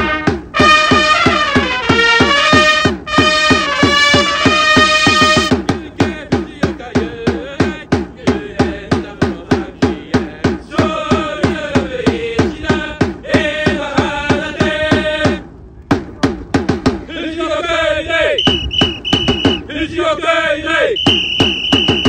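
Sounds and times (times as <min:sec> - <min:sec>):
trumpets playing: 0:00.0 - 0:05.6, 0:18.4 - 0:19.6, 0:21.0 - 0:22.0
marching snare drum beat: 0:00.0 - 0:17.1, 0:18.4 - 0:19.7, 0:21.0 - 0:22.0
voices chanting in unison: 0:05.7 - 0:15.5, 0:17.0 - 0:22.0.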